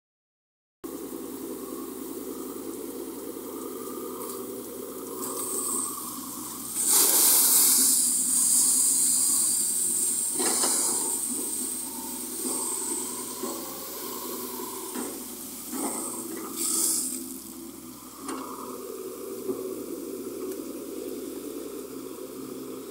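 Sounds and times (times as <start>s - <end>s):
excavator engine running: 0.8s - 22.9s
water gushing and splashing: 3.3s - 20.1s.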